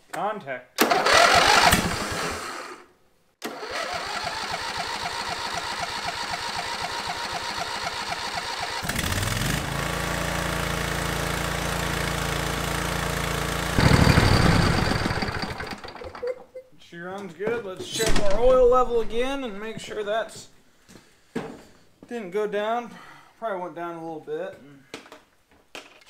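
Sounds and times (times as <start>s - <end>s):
lawn tractor engine running: 0.8s - 2.6s, 3.4s - 16.3s
electric starter cranking: 0.8s - 16.3s.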